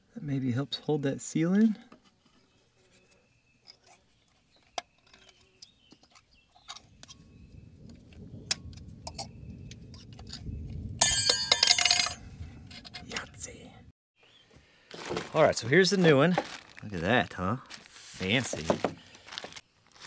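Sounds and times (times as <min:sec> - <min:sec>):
metal jingling and clinking: 0:11.0 - 0:12.2.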